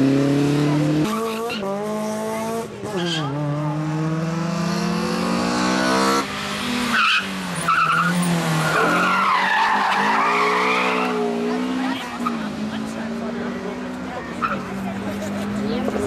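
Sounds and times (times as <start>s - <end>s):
rally car engine at full throttle: 0.0s - 16.0s
tyre squeal: 6.9s - 11.3s.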